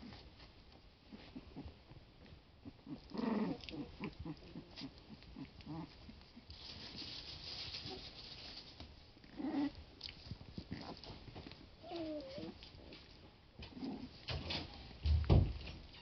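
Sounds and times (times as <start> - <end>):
soft rustling hiss: 0.0 - 16.0
puppies growling: 1.1 - 6.5, 9.2 - 14.4.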